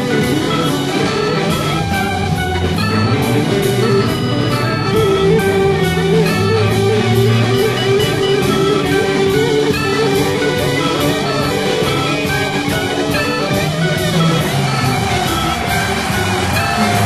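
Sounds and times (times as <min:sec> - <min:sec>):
bass guitar: 0:00.0 - 0:17.0
drums: 0:00.0 - 0:17.0
keyboards: 0:00.0 - 0:17.0.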